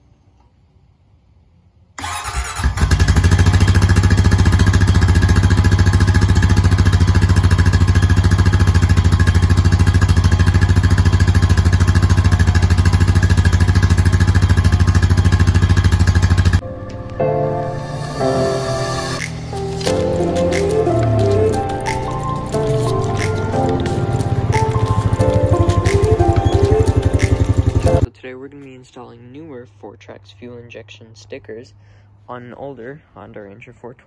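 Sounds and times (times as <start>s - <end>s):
engine starting and idling: 2.0s - 16.6s, 22.5s - 28.1s
background music with held notes: 16.6s - 28.1s.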